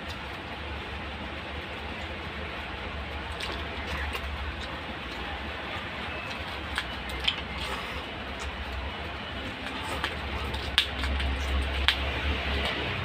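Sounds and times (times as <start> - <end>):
wet chewing and lip smacks: 3.2 - 12.8.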